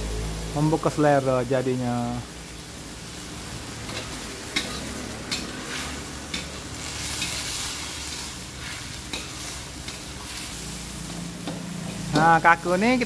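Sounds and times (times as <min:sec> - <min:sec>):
vegetables sizzling in a wok: 0:00.0 - 0:13.0
metal spatula scraping wok: 0:03.1 - 0:13.0.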